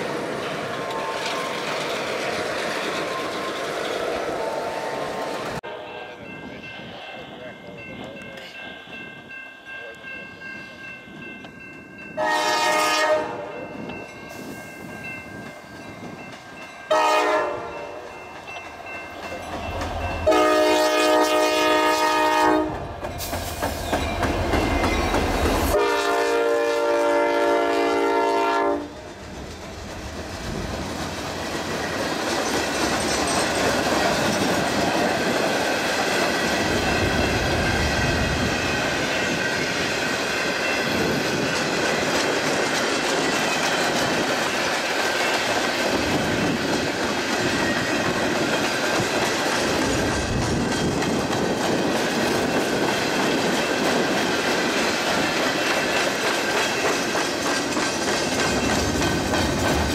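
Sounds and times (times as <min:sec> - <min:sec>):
locomotive air horn blasts: 0:12.2 - 0:13.6, 0:16.9 - 0:18.0, 0:20.2 - 0:22.8, 0:25.7 - 0:29.0
freight cars rolling and clattering: 0:41.0 - 0:59.9.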